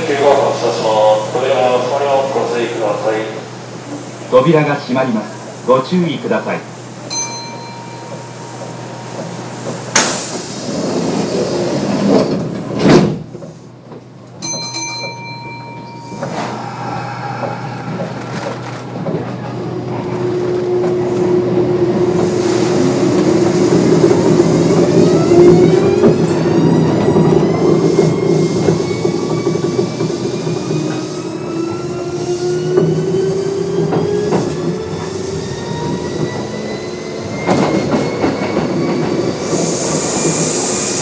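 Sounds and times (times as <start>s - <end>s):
train doors shutting: 0.0s - 41.0s
train motor hum and whine: 14.9s - 41.0s.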